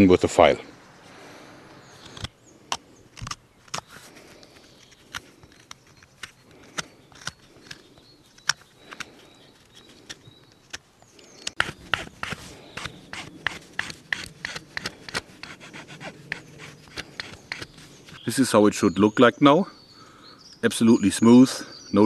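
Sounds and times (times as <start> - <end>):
knife scraping wood: 2.0 - 18.2.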